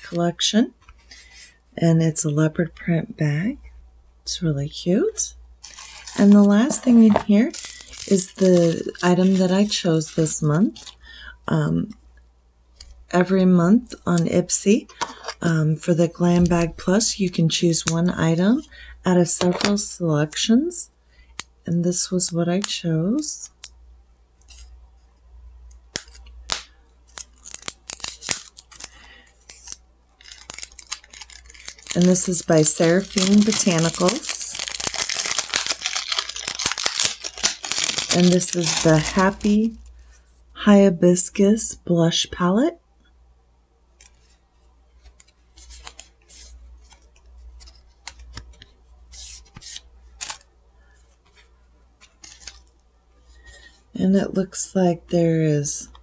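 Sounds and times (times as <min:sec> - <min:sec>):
cardboard packaging clicks and rustles: 0:05.6 - 0:09.8, 0:26.0 - 0:40.0, 0:45.0 - 0:52.8.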